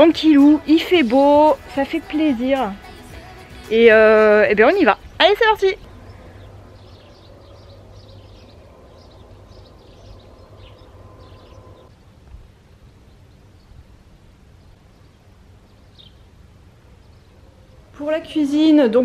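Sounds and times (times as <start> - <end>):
small birds chirping: 0.0 - 11.9, 12.8 - 18.9
low outdoor rumble: 0.0 - 19.0
faint steady hum: 4.0 - 19.0.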